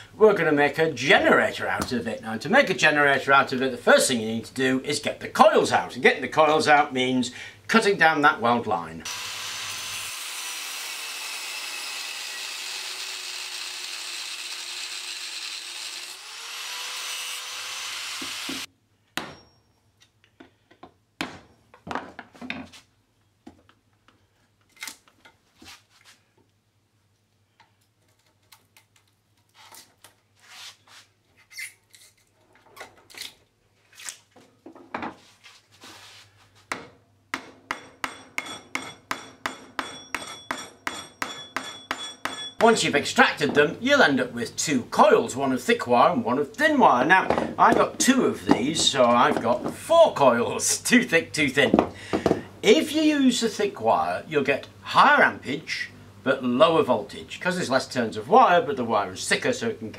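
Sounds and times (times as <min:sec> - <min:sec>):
angle grinder cutting steel: 0:09.1 - 0:18.7.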